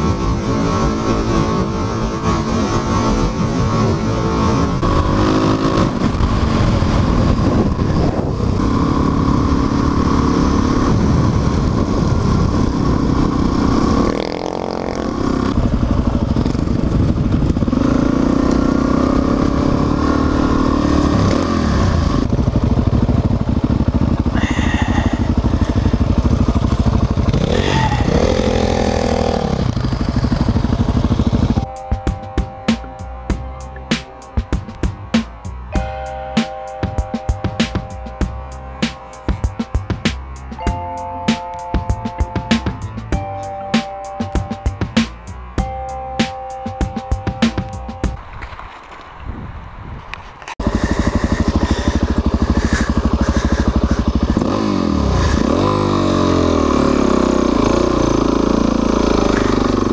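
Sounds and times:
motorcycle engine revving: 0.0s - 31.7s, 50.5s - 59.9s
wind rush: 3.2s - 14.1s, 15.1s - 18.0s, 48.2s - 55.4s
background music: 31.6s - 48.2s.

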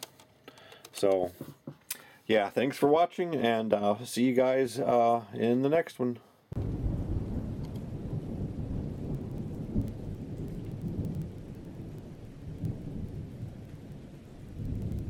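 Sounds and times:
rain: 6.6s - 15.0s
rolling thunder: 6.6s - 15.0s.

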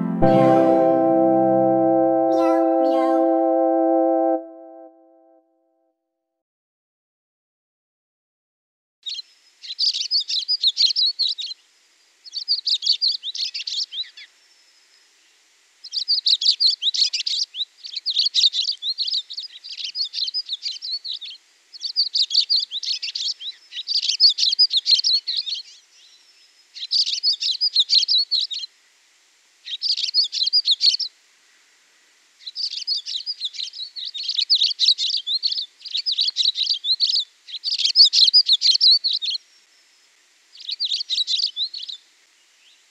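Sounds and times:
small songbirds chirping: 9.0s - 28.7s, 29.6s - 31.1s, 32.4s - 42.9s.

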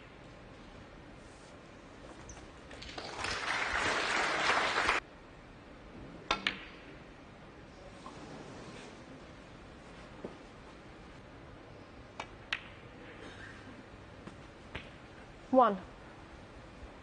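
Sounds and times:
audience applause: 2.8s - 5.0s.

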